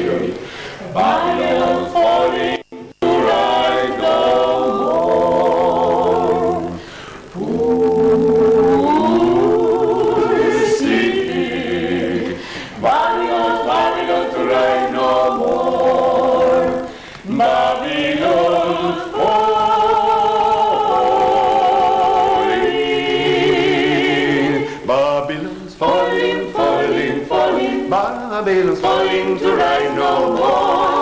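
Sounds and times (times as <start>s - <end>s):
group singing a cappella: 0.0s - 31.0s.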